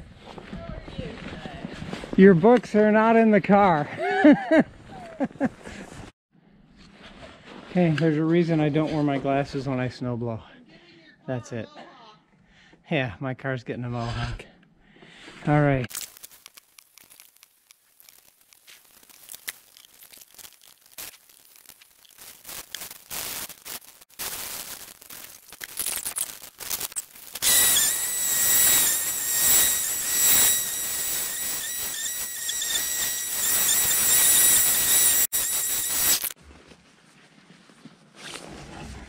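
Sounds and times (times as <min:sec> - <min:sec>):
sped-up crackles and clicks: 0:15.9 - 0:36.4
sped-up snowblower whine: 0:26.2 - 0:36.4.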